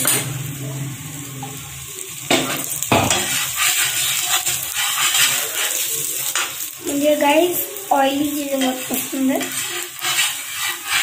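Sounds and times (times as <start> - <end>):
spatula scraping and clattering: 0.0 - 0.4, 2.3 - 6.7, 8.4 - 11.0
bread sizzling on a griddle: 0.0 - 11.0
metal spatula knocking on griddle: 2.3 - 3.4.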